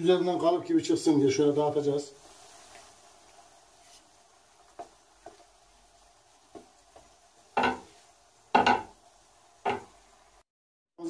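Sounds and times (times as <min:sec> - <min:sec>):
wooden spatula scraping frying pan: 0:02.2 - 0:09.0, 0:09.6 - 0:10.0.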